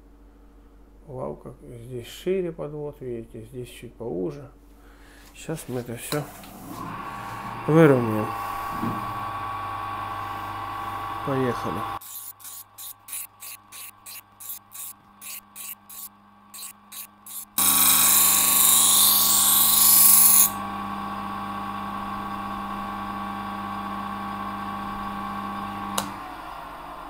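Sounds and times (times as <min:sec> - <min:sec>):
grinder motor humming: 0:06.1 - 0:26.6
knife blade grinding on wheel: 0:12.0 - 0:20.6.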